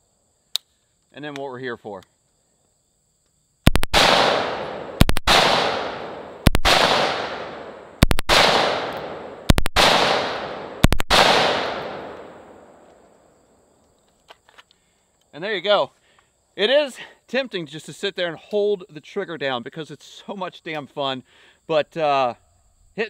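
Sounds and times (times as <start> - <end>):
rifle automatic bursts with echo: 3.7 - 12.1.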